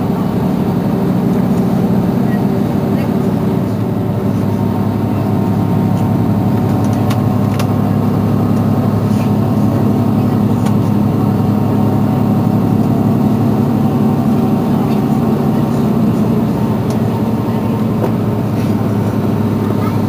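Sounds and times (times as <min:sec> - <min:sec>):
bus engine idling: 0:00.0 - 0:20.0.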